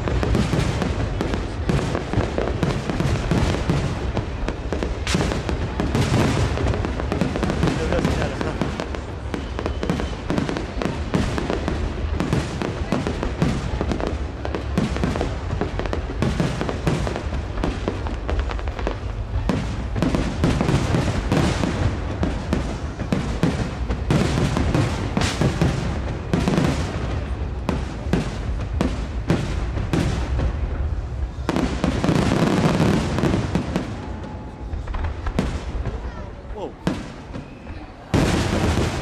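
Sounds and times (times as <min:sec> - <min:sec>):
fireworks bursting and crackling: 0:00.0 - 0:39.0.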